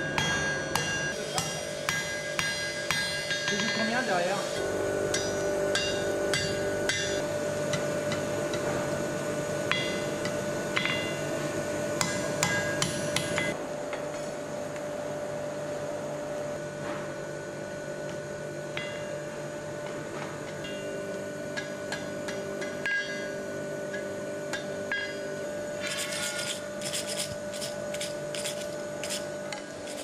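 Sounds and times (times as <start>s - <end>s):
hammer striking iron on anvil: 0.0s - 8.8s, 9.7s - 11.3s, 12.0s - 13.6s, 18.7s - 19.2s, 20.5s - 25.4s
steady hum: 0.0s - 30.0s.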